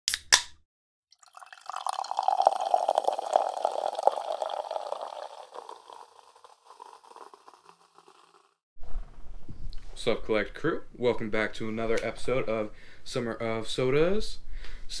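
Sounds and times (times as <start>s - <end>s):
soda pouring and fizzing: 1.1s - 8.6s.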